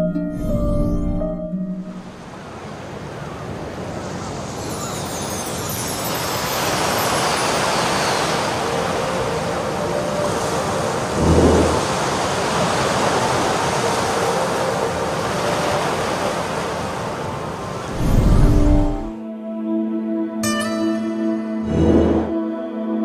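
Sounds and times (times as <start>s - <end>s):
sea surf washing: 2.0s - 19.2s.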